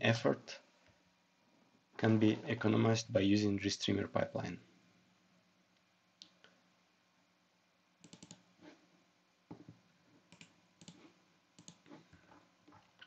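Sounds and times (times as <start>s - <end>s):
computer mouse and key clicks: 8.0s - 8.4s, 9.5s - 13.0s.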